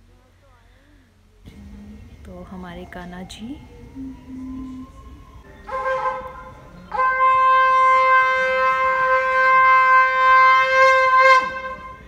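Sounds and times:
conch shell blowing: 0:05.7 - 0:12.0.

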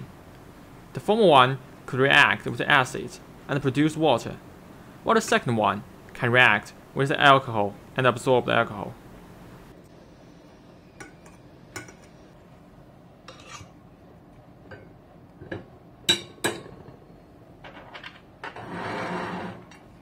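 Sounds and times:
glassware clinking: 0:11.0 - 0:12.2.

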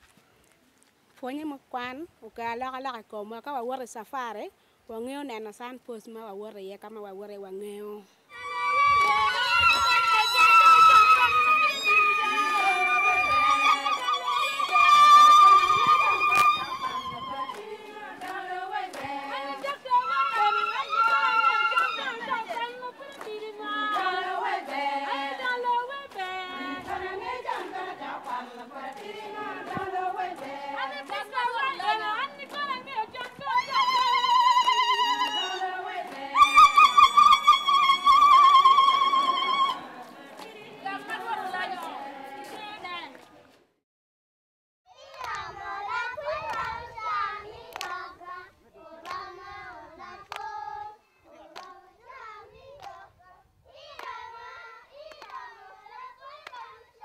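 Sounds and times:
women singing together: 0:08.3 - 0:43.2, 0:45.3 - 0:57.0
hand claps: 0:08.9 - 0:11.9, 0:15.6 - 0:24.9, 0:47.7 - 0:48.0, 0:50.2 - 0:50.5, 0:51.5 - 0:51.8, 0:54.0 - 0:54.2, 0:55.1 - 0:55.4, 0:56.4 - 0:56.7.

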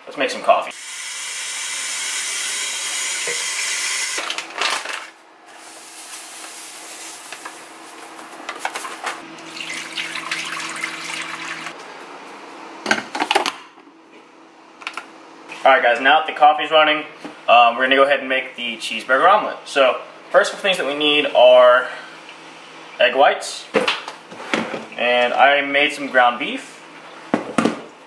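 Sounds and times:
faucet running water into sink: 0:09.4 - 0:11.7.

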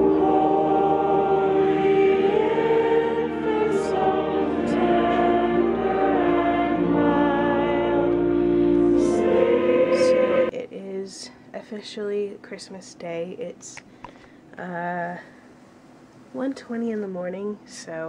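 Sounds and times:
choir singing held chords: 0:00.0 - 0:10.5.

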